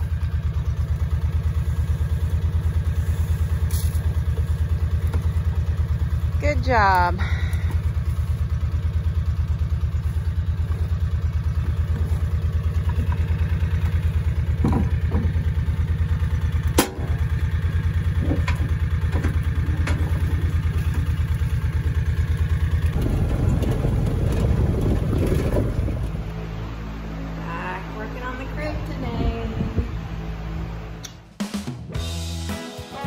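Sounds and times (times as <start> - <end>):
small engine idling: 0.0 - 31.3
knocks of buckets handled: 11.6 - 15.6, 18.1 - 21.1
tailgate clank: 18.2 - 20.5.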